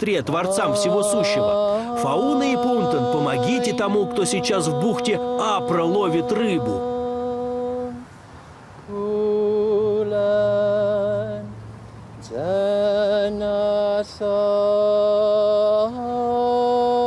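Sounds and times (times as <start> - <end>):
man chanting: 0.0 - 8.0.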